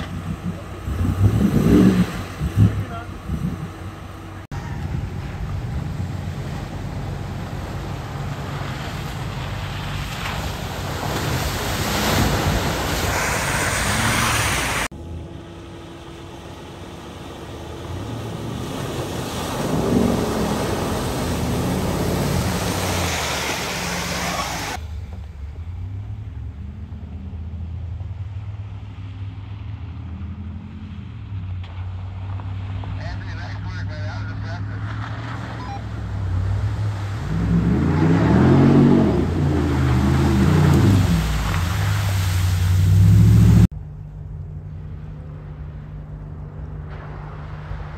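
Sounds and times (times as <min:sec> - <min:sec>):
truck engine revving: 0:00.0 - 0:43.7
water splashing off tyres: 0:05.0 - 0:14.9, 0:16.6 - 0:25.7, 0:34.9 - 0:43.7.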